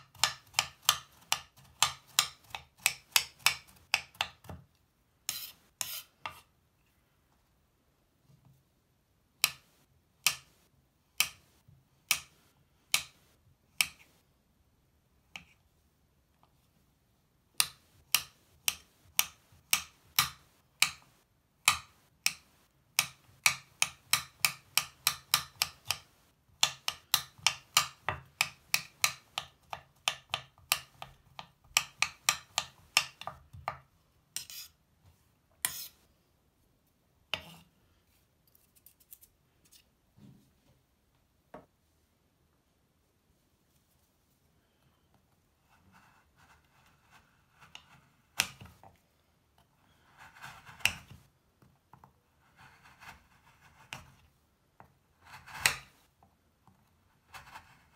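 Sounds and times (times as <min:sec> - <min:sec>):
knife chopping on cutting board: 0:00.1 - 0:04.6
knife blade scraping board: 0:05.2 - 0:06.5, 0:34.4 - 0:34.8, 0:35.6 - 0:36.0, 0:37.3 - 0:37.7.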